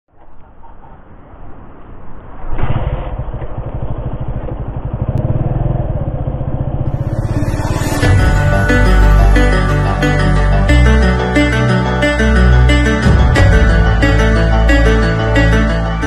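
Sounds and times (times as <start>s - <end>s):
motorcycle engine idling: 3.3s - 7.5s
music: 6.9s - 16.0s.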